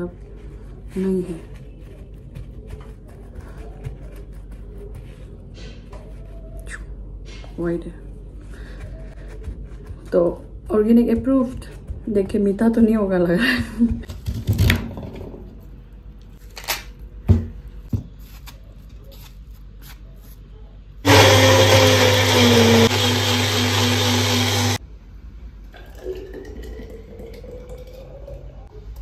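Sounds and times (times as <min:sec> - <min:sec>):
blender running: 0:21.0 - 0:24.8
juice pouring into glass bottle: 0:25.7 - 0:28.6.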